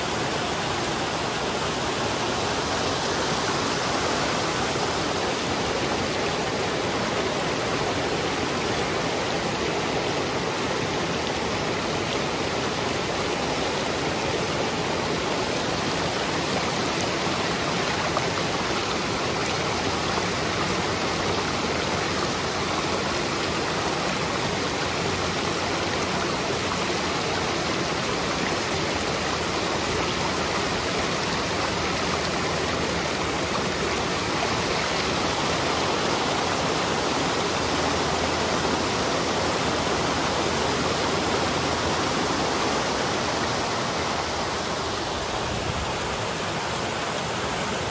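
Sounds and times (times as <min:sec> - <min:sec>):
creek rushing over rocks: 0:00.0 - 0:47.9.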